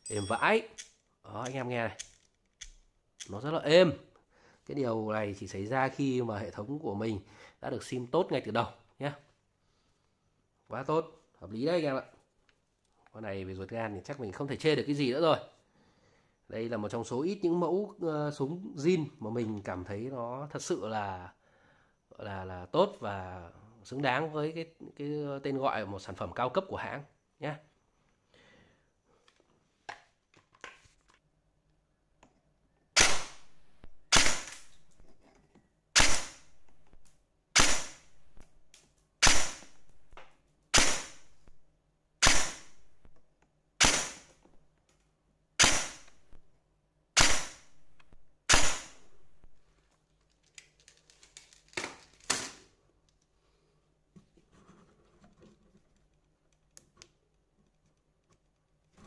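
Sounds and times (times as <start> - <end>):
airsoft gun shots: 33.0 - 33.5, 34.1 - 34.7, 36.0 - 36.5, 37.6 - 38.1, 39.2 - 39.8, 40.7 - 41.3, 42.2 - 42.8, 43.8 - 44.3, 45.6 - 46.1, 47.2 - 47.7, 48.5 - 49.0.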